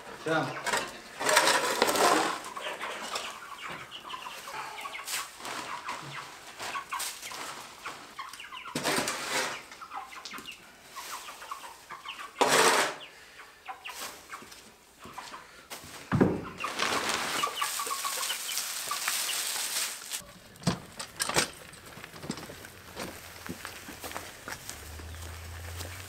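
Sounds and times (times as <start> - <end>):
chickens clucking: 0.0 - 26.0
shovel scraping bedding: 1.2 - 2.5, 8.7 - 9.7, 12.4 - 13.0, 16.6 - 20.3.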